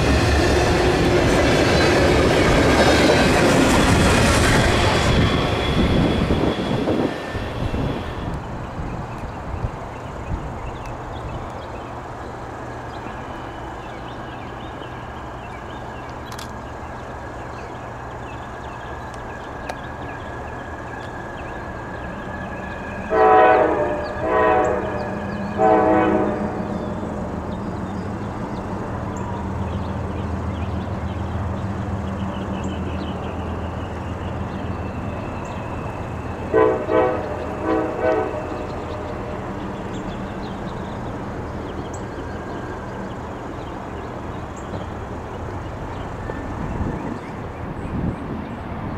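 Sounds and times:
diesel locomotive rumble: 0.0s - 48.9s
locomotive air horn blasts: 23.1s - 26.7s, 36.5s - 39.0s.

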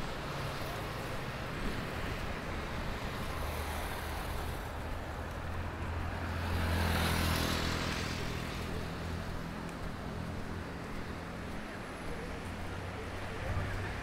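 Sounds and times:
low traffic hum: 0.0s - 14.0s
motor vehicle passing: 5.8s - 14.0s.

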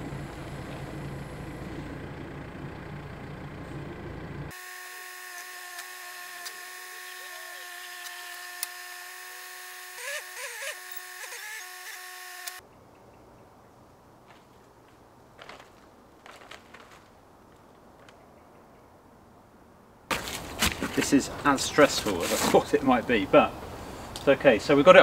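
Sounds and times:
engine rumble: 0.0s - 4.5s, 12.6s - 25.0s.

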